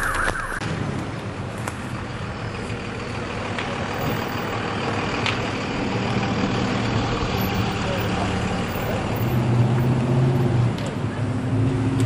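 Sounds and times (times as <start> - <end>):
vehicle engine idling: 1.1 - 9.4.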